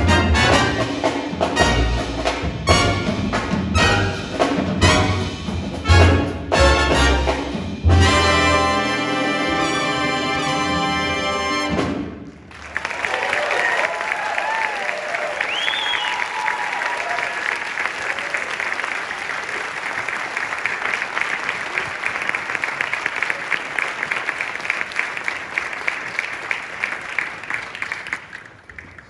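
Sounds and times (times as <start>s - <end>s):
audience applauding: 12.3s - 29.0s.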